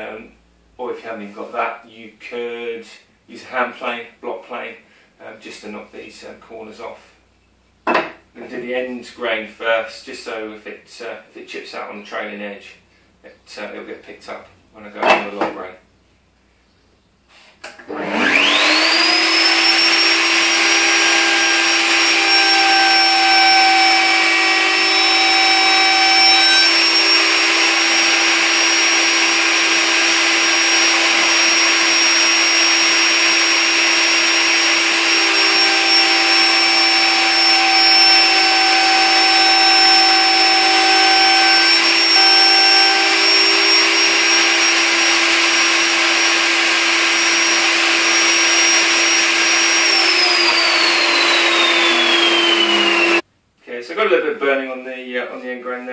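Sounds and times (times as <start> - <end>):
router high-pitched whine: 17.9 - 53.2.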